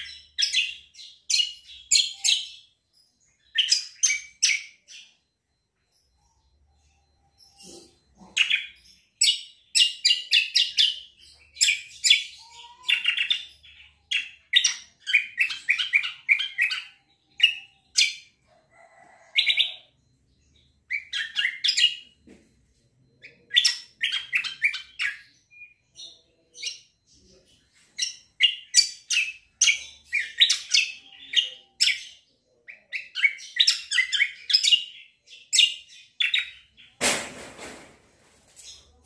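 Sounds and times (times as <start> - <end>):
songbird rapid chirping: 0.0 - 37.0.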